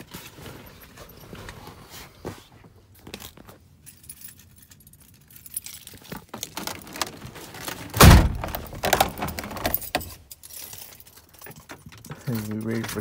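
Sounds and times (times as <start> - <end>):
clicks and rattles of handling: 3.0 - 13.0
keys jangling: 3.2 - 7.0, 8.5 - 13.0
heavy thump: 8.0 - 9.0.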